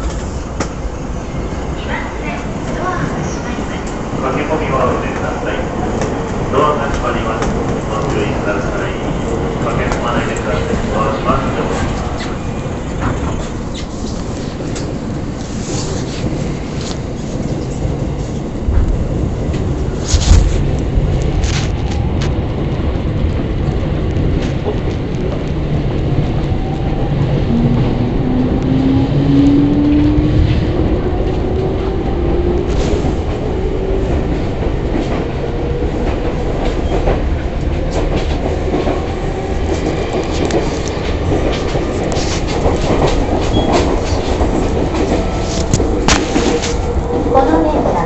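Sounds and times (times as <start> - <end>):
wheels rumbling on rail: 0.0 - 48.0
rail-joint clicks: 36.0 - 47.6.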